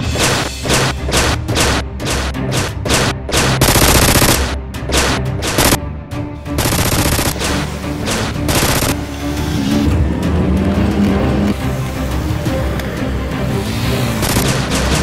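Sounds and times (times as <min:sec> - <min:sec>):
background music: 0:00.0 - 0:15.0
machine-gun fire: 0:00.2 - 0:05.8, 0:06.6 - 0:09.0, 0:14.2 - 0:15.0.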